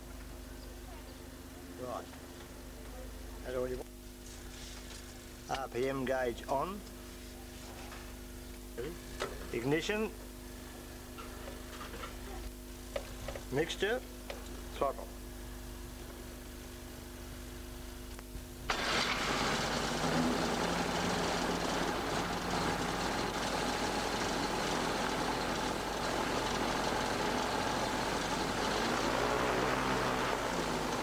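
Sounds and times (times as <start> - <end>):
aero engine running: 18.7 - 31.0.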